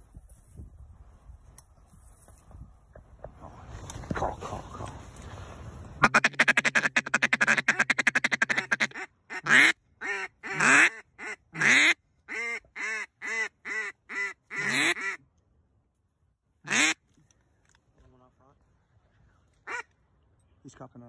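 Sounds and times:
duck call rattling chuckle: 6.0 - 9.7
duck call quacks: 6.0 - 15.2, 16.6 - 17.0, 19.7 - 19.9.

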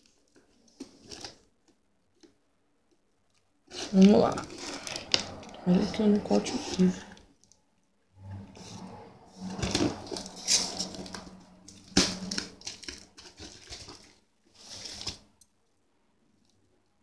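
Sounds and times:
cardboard scraping and rustling: 3.7 - 7.0, 8.4 - 15.3.

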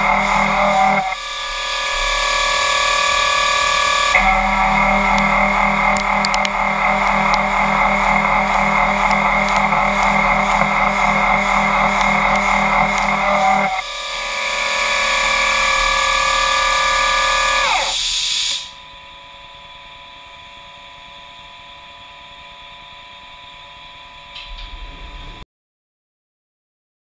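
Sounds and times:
milling machine cutting: 0.0 - 18.7
spindle whine: 0.0 - 25.4
quiet machine hum: 4.1 - 13.8.

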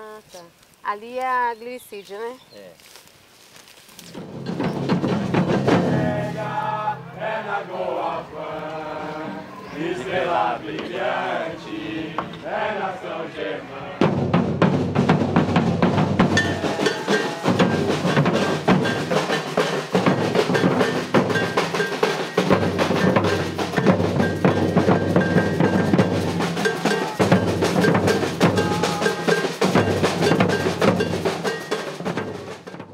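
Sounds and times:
deep bass drums: 4.1 - 6.9, 14.0 - 21.8, 22.4 - 32.6
snare drums: 4.1 - 7.6, 14.0 - 32.9
percussion ensemble playing: 4.1 - 8.0, 14.0 - 32.9.

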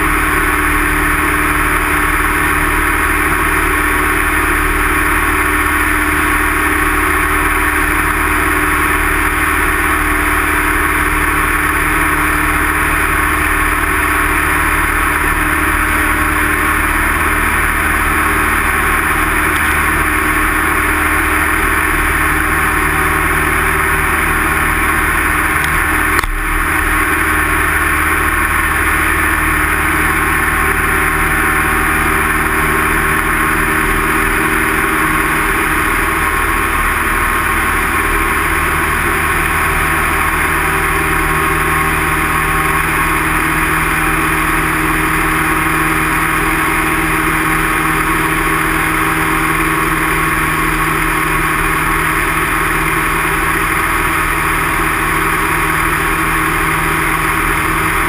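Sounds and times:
airplane engine and propeller: 0.0 - 58.0.

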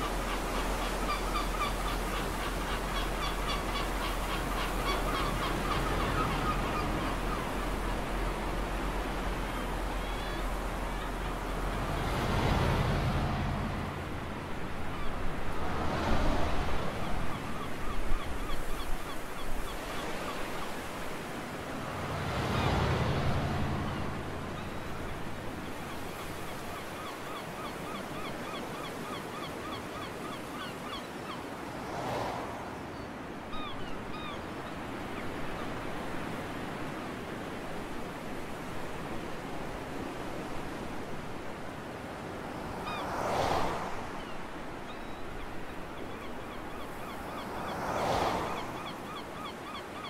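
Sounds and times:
bird calling: 0.0 - 8.2, 23.8 - 31.7, 44.1 - 50.0
sea waves breaking on beach: 0.0 - 50.0.

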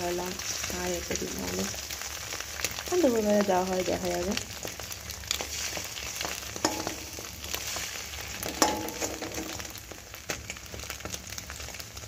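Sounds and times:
omelette sizzling in a wok: 0.0 - 12.0
metal spatula knocking on pan: 6.6 - 7.2, 8.4 - 9.8.

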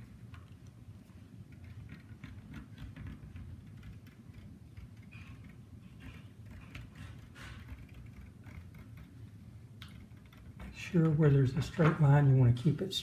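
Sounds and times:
low room hum: 0.0 - 13.0
pen scratching on paper: 1.5 - 10.8.

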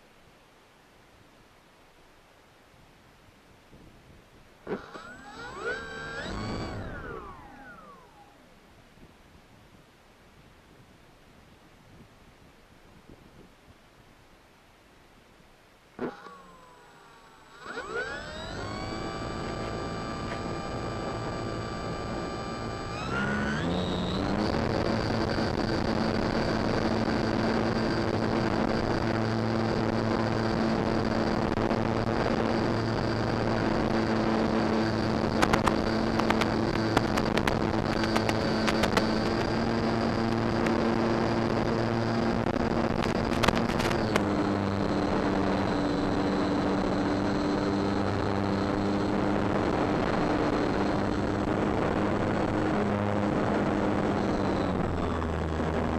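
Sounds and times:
electric motor and propeller whine: 4.6 - 8.7, 16.0 - 55.9
clicks: 4.7 - 8.4, 16.0 - 21.7, 35.4 - 40.8, 43.0 - 44.4.

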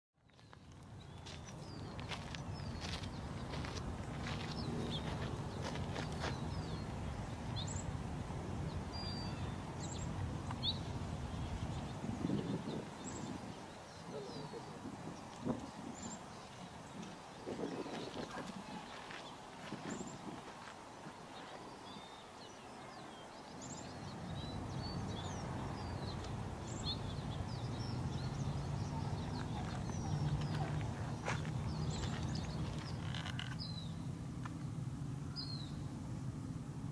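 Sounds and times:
small birds chirping: 0.2 - 8.0, 8.6 - 35.9.

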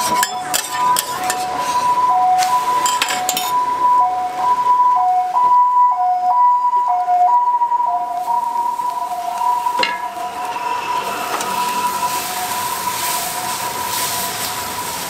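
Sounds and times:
tongs and spatula clinking on griddle: 0.0 - 1.5, 2.8 - 3.5
two-tone siren: 0.0 - 15.0.

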